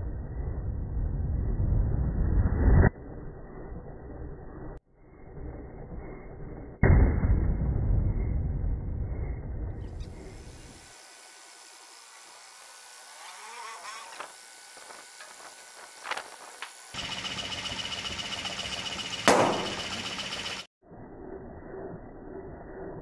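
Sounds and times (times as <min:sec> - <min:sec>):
air compressor motor running: 0:10.4 - 0:20.7
balloon bursting: 0:19.3 - 0:19.9.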